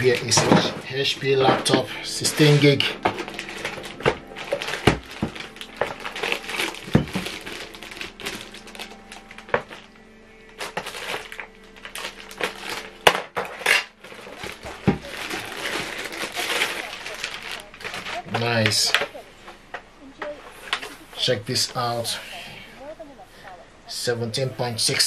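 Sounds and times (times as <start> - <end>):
plastic wrap crinkling: 0.0 - 22.2.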